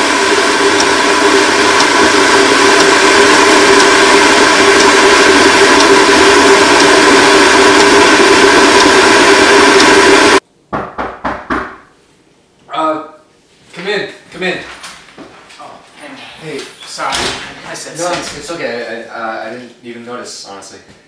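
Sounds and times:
kettle boiling: 0.0s - 10.4s.

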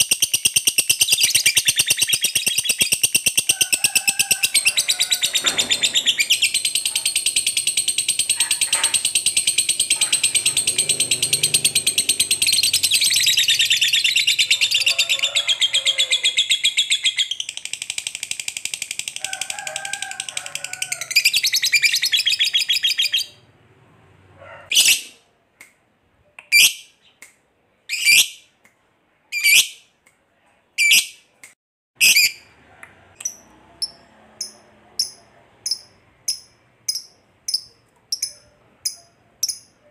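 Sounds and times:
bird chirps: 0.0s - 3.5s, 4.6s - 14.9s, 15.9s - 18.7s, 21.1s - 23.4s, 33.2s - 39.9s
bird chattering trill: 4.6s - 14.9s, 33.2s - 39.9s.

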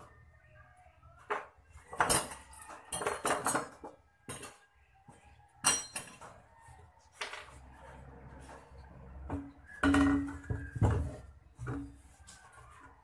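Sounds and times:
metal cylinders clinking: 1.9s - 4.6s, 5.6s - 6.4s, 9.3s - 12.0s.

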